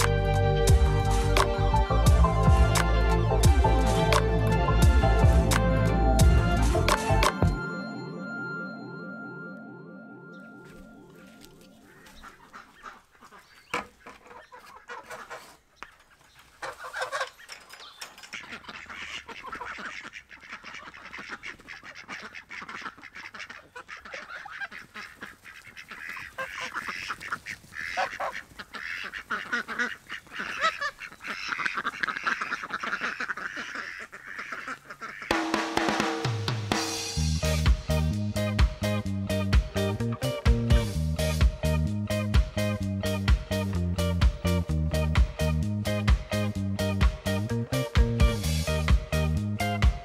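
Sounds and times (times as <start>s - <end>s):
ducks quacking and honking: 10.4s - 50.0s.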